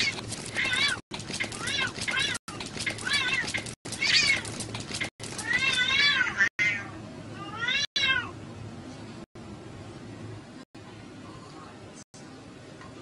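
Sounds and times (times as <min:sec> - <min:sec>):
cats fighting and yowling: 0:00.0 - 0:08.3.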